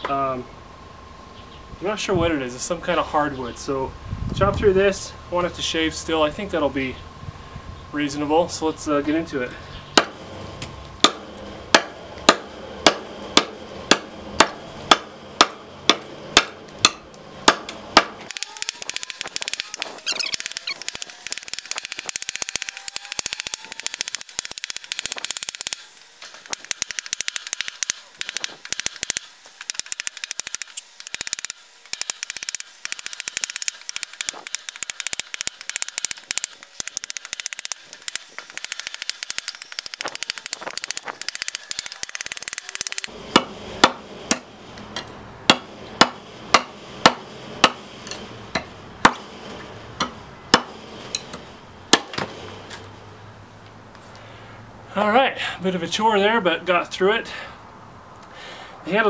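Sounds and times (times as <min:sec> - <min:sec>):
knife chopping into wood: 0:10.0 - 0:10.2, 0:11.0 - 0:18.2, 0:43.4 - 0:44.5, 0:45.5 - 0:47.8, 0:50.0 - 0:50.7.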